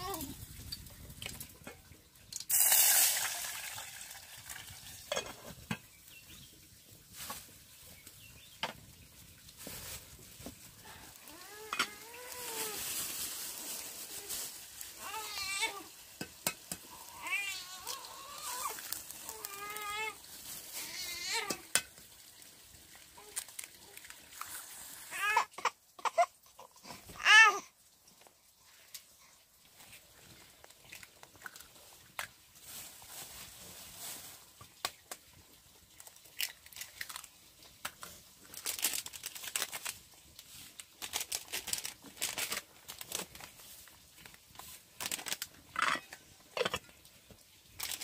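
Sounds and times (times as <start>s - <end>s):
food sizzling in a pan: 2.5s - 5.2s, 11.2s - 22.7s.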